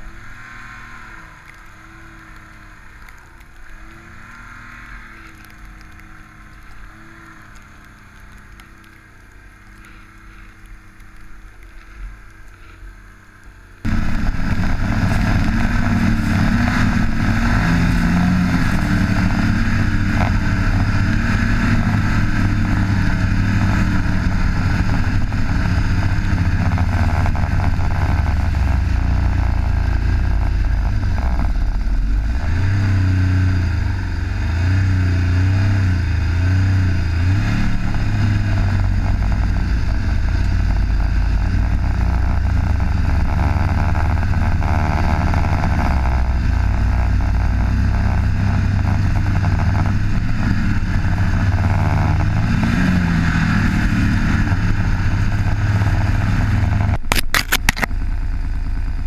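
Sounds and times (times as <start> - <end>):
snowmobile engine revving: 0.0 - 9.0, 13.8 - 57.9
rushing noise: 13.8 - 59.0.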